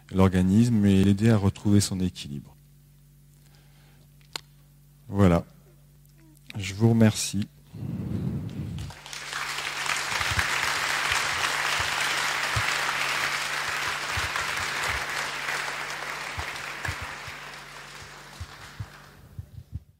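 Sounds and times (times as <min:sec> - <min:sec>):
audience applauding: 0:08.8 - 0:19.4.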